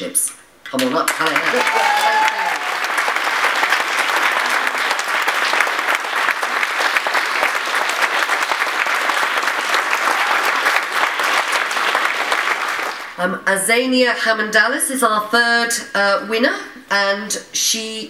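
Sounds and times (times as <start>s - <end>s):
audience applauding: 1.1s - 13.2s.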